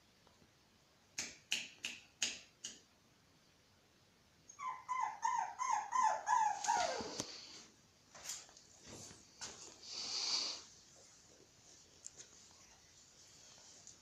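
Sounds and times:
short sharp snaps: 1.1 - 2.9
puppy whimpering: 4.5 - 7.3.

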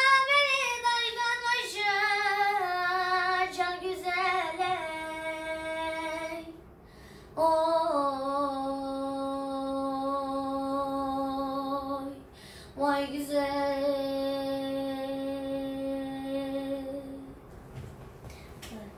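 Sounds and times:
boy singing unaccompanied: 0.0 - 6.6.

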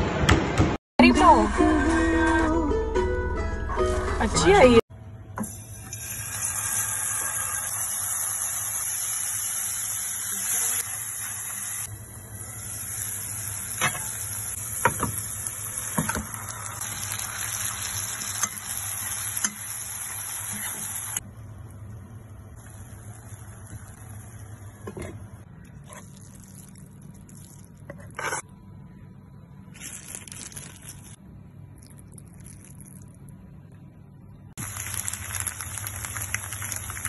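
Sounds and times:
hot oil sizzling in a pan: 5.5 - 21.2, 34.6 - 37.0.

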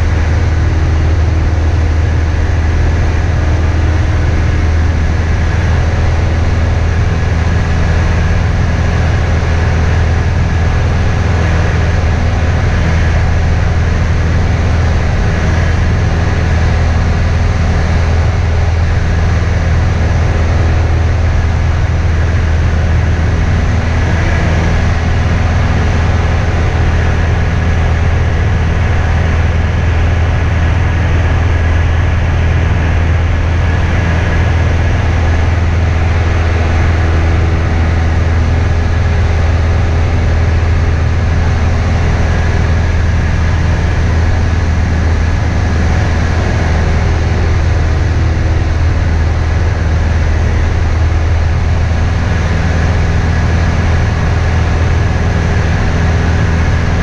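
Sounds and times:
small airplane engine drone: 0.0 - 57.0.

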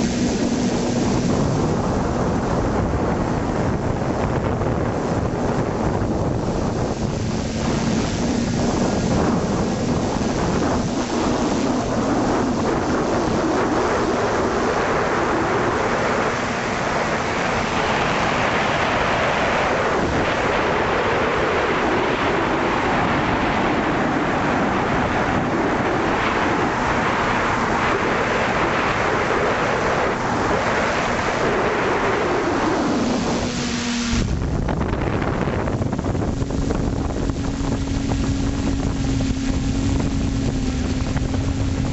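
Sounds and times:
electric motors and propellers whining: 0.0 - 41.9
wind rushing over microphone: 0.0 - 41.9.

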